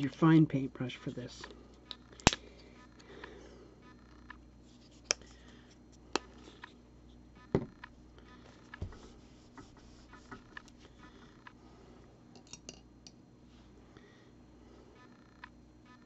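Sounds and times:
dull knock: 7.5s - 7.7s.

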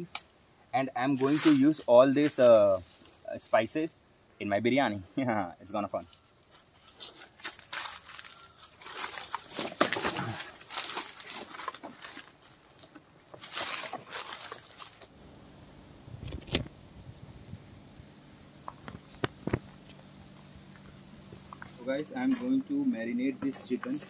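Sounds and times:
faint low hum: 0.0s - 24.0s
footsteps through dry leaves: 1.1s - 3.2s, 6.1s - 15.1s.

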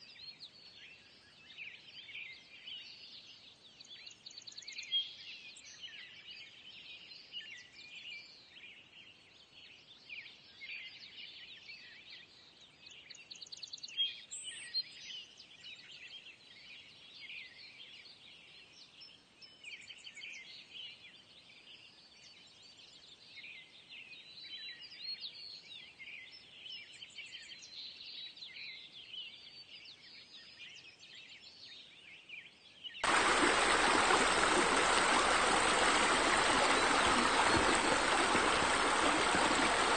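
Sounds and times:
songbirds chirping: 31.4s - 39.9s
running water rushing: 33.0s - 39.9s.

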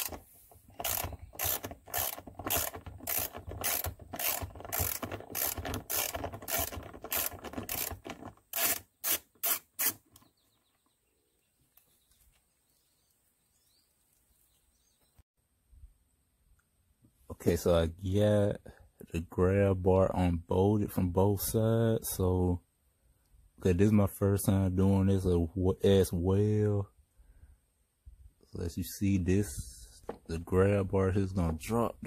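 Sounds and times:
socket ratchet clicking: 0.0s - 10.2s.

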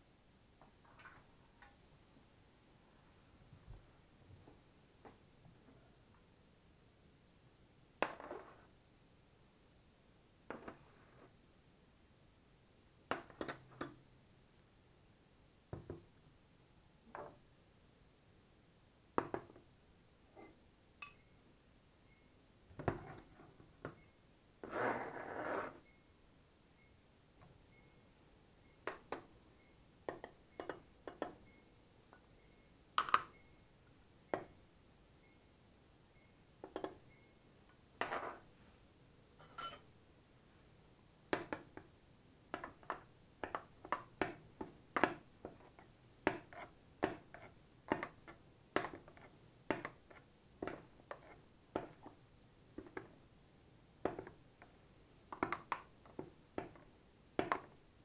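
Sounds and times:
metal spoon clinking glass bowl: 20.4s - 21.4s, 30.1s - 31.6s, 36.6s - 37.3s, 39.4s - 39.9s.

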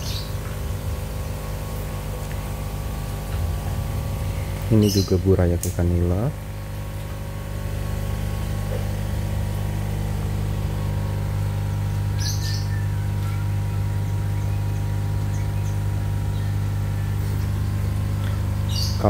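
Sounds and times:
bird chirping: 0.0s - 1.5s, 4.2s - 5.5s, 12.1s - 19.0s
air pumps humming: 0.0s - 19.0s.

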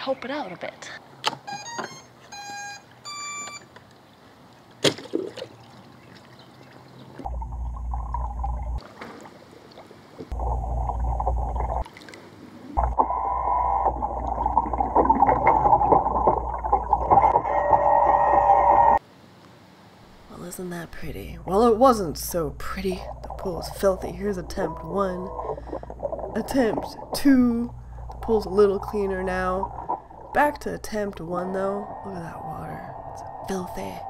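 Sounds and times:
short electronic beeps: 1.5s - 3.7s
muffled underwater water noise: 3.7s - 19.0s, 22.4s - 34.0s
low hum: 7.2s - 8.8s, 10.3s - 19.0s, 20.0s - 34.0s.

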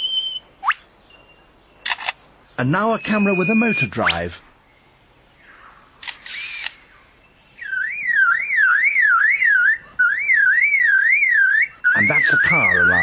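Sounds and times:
bird mimicking car alarm warble: 2.6s - 4.3s, 7.6s - 13.0s
bird mimicking mechanical whirr: 6.0s - 6.9s.

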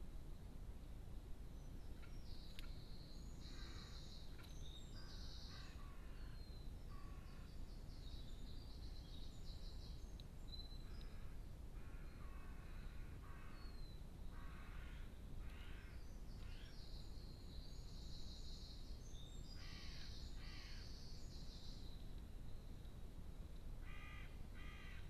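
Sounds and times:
harsh rasping bird calls: 19.5s - 20.9s.

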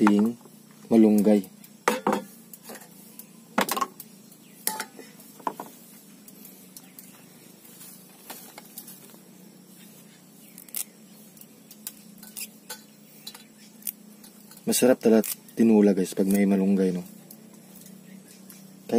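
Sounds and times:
leaves rustling: 0.0s - 18.9s
stems snapping: 10.4s - 18.7s.

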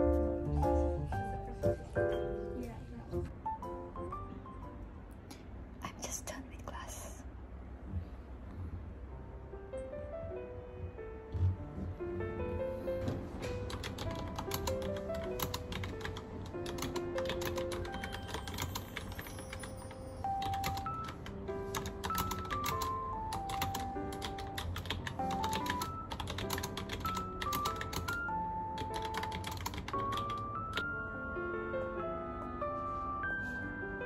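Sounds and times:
gentle piano tune: 0.0s - 6.9s, 8.0s - 34.0s
keyboard typing clicks: 13.6s - 19.2s, 20.4s - 30.9s.

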